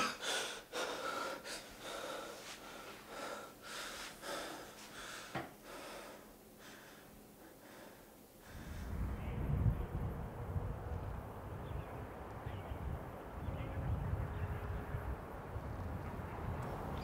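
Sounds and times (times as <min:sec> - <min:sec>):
man breathing hard: 0:00.0 - 0:09.0.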